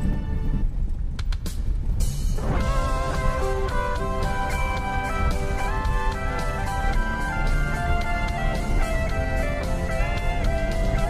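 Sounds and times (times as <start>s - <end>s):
instrumental guitar pop music: 2.4s - 11.0s.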